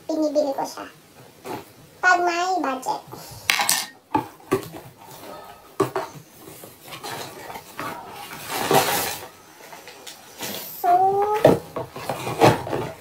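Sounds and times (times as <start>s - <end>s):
paper packing rustling: 6.0s - 13.0s
cardboard flaps knocking and scraping: 11.3s - 13.0s.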